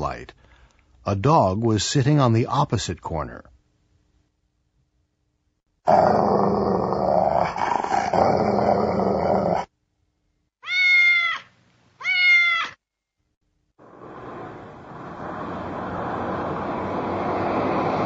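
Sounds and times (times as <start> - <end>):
dog growling: 5.9 - 9.7
cat meowing: 10.6 - 12.8.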